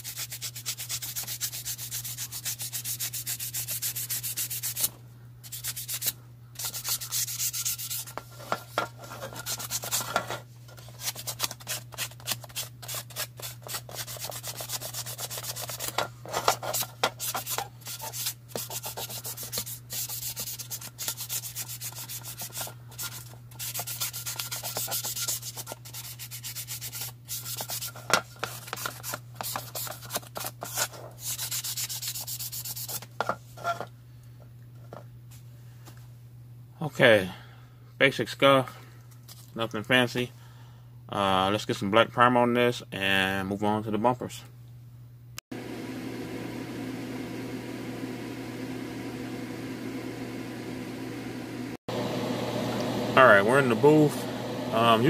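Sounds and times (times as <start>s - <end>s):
sanding plastic: 0.0s - 33.1s.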